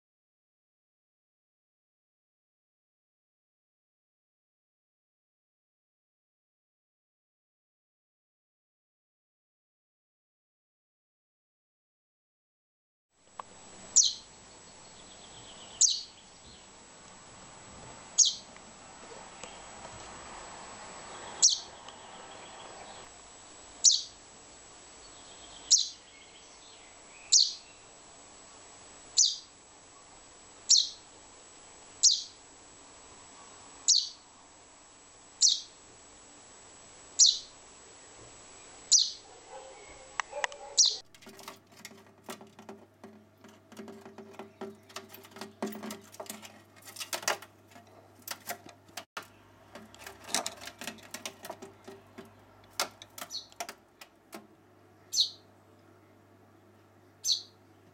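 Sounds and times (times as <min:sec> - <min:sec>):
bird chick calling: 0:13.9 - 0:14.3, 0:15.0 - 0:16.3, 0:18.2 - 0:18.5, 0:21.3 - 0:23.0, 0:23.8 - 0:24.2, 0:25.6 - 0:26.1, 0:27.2 - 0:27.8, 0:29.2 - 0:29.5, 0:30.7 - 0:31.0, 0:32.0 - 0:32.4, 0:33.9 - 0:34.2, 0:35.4 - 0:35.8, 0:37.2 - 0:37.5, 0:38.9 - 0:41.0, 0:53.2 - 0:53.7, 0:55.0 - 0:55.5, 0:57.2 - 0:57.6
small clicks and taps: 0:40.2 - 0:54.5.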